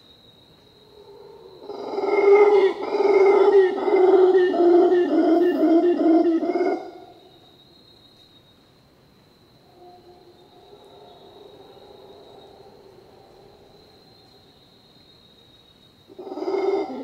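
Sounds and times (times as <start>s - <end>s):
howler monkey howling: 0.9s - 7.3s, 9.7s - 14.6s, 16.1s - 17.0s.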